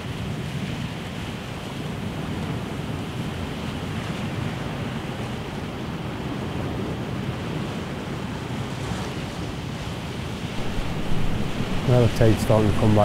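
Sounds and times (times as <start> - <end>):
wind buffeting microphone: 10.3 - 13.0
sea washing against rocks: 10.4 - 13.0.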